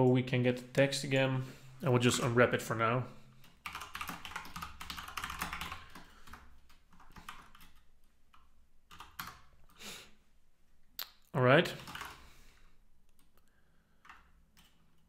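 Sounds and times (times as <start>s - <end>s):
typing on keyboard: 3.4s - 9.5s, 11.8s - 12.2s, 13.1s - 15.0s.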